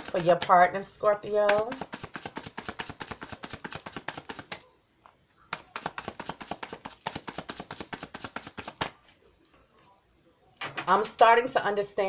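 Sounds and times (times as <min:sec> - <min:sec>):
cards being shuffled by hand: 0:01.4 - 0:04.6, 0:05.5 - 0:09.1.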